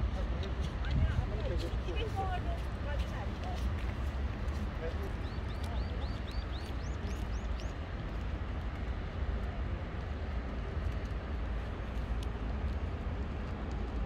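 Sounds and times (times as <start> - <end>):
small bird chirping: 5.1 - 7.8.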